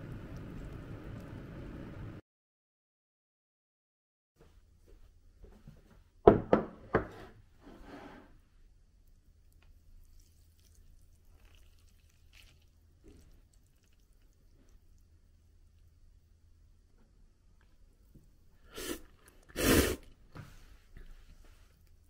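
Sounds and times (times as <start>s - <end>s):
dishes knocking on wooden table: 6.3s - 7.2s.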